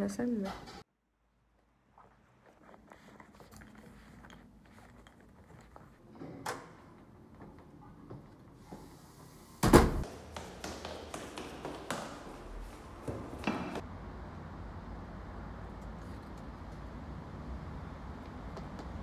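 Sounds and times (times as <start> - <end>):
loud thump: 9.6 - 10.1
footsteps on stone stairs: 10.0 - 13.8.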